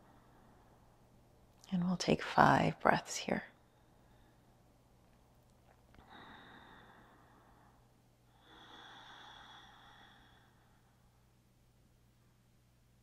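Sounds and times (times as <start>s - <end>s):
slow deep breathing: 3.6s - 4.8s, 5.9s - 11.4s.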